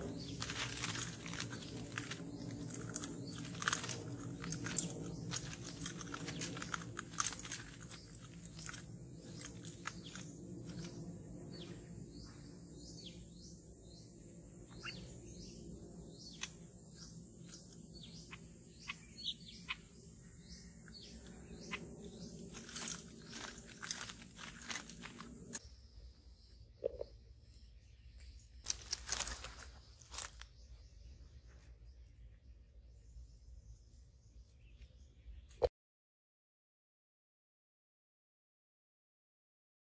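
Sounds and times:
birds clicking and chirping: 0:00.0 - 0:25.6, 0:28.1 - 0:30.5
high insect drone: 0:00.0 - 0:30.5.

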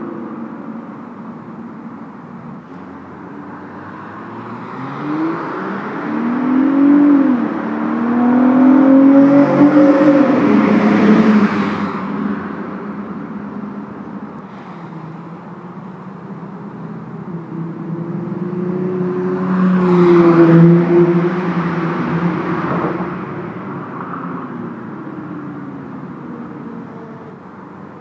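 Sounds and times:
car engine accelerating past: 0:03.9 - 0:12.0.

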